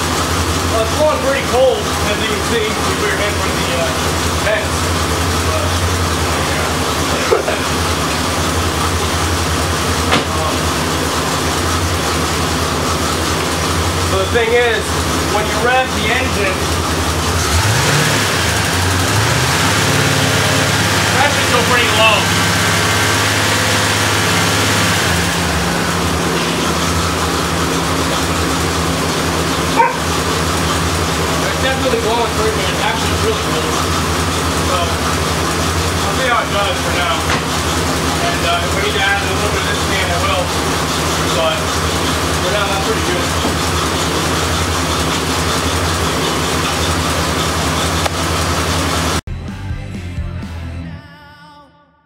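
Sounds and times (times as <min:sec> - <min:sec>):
car engine idling: 0:00.0 - 0:49.3
air conditioning running: 0:25.1 - 0:49.1.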